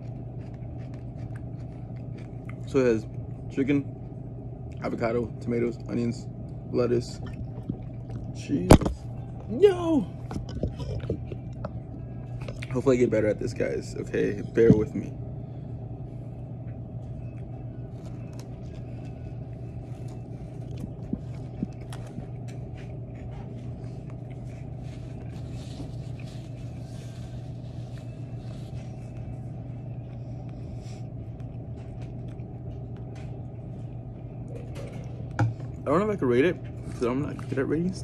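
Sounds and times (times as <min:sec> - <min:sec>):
low room hum: 0:00.0 - 0:38.0.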